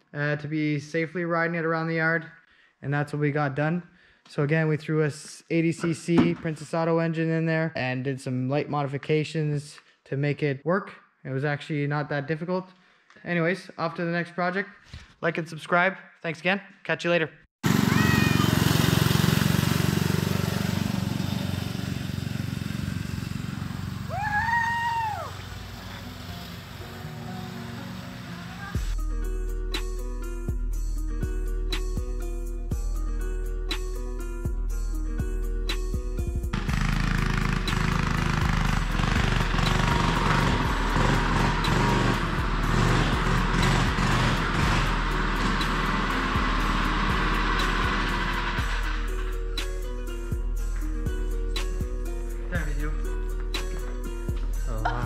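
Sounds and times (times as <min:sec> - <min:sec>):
small engine running: 0:17.6 - 0:24.3, 0:36.5 - 0:49.4
background music: 0:25.1 - 0:55.0.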